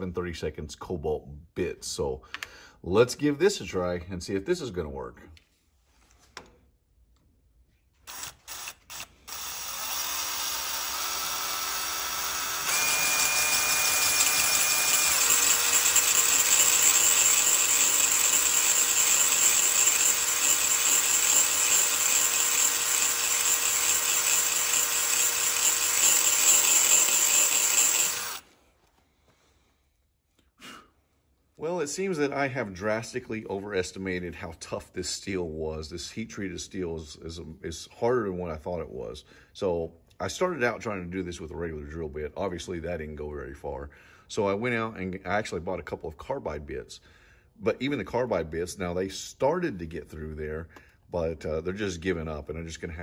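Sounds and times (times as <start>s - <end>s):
cordless drill boring into steel: 8.0s - 28.5s.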